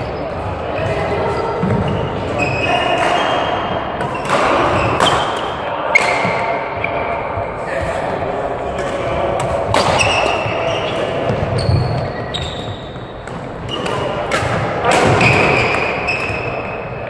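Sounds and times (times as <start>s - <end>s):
shoes squealing on floor: 0.0s - 8.0s, 9.7s - 17.0s
rackets striking shuttlecock: 8.8s - 16.7s.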